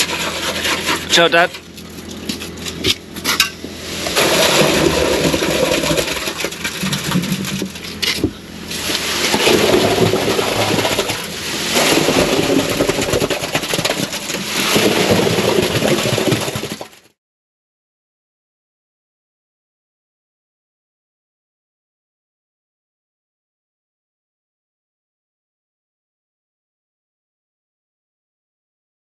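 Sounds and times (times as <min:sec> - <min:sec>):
wet concrete sliding and splashing: 0:00.0 - 0:17.0.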